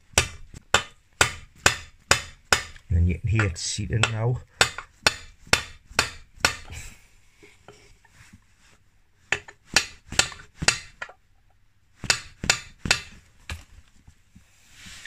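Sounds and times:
hammer striking metal: 0.2s - 2.8s, 3.4s - 6.7s.

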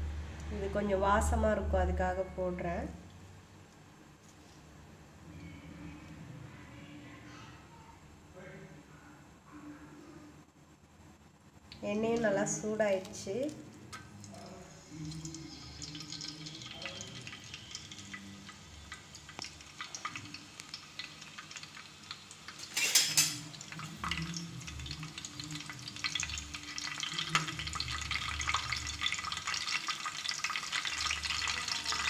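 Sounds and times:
leaves sizzling in hot oil: 12.0s - 32.0s.

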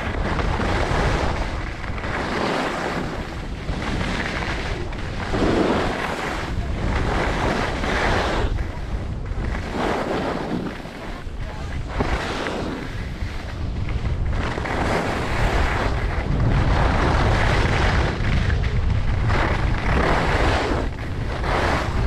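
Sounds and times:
skis scraping over snow: 0.0s - 22.0s
wind rumbling on microphone: 0.0s - 22.0s.

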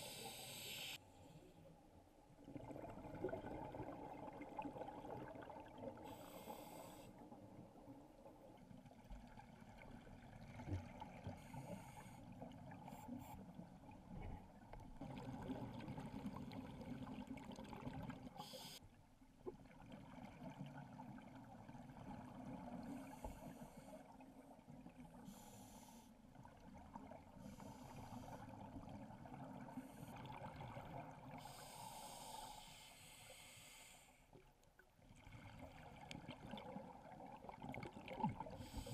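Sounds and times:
scuba breathing hisses: 0.0s - 1.0s, 6.0s - 7.1s, 18.4s - 18.8s, 25.3s - 26.1s, 31.4s - 34.3s, 38.6s - 38.9s
exhaled bubbles: 2.4s - 6.0s.

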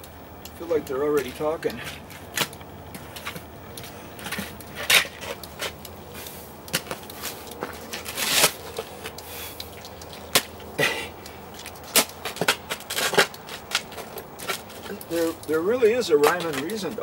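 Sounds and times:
shovel scraping wet mud: 4.3s - 9.6s.

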